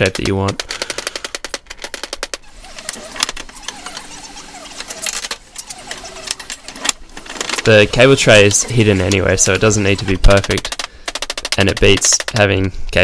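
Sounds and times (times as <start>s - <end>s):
wire mesh rattling and scraping: 1.5s - 12.5s
hammer tapping wire: 9.6s - 12.5s.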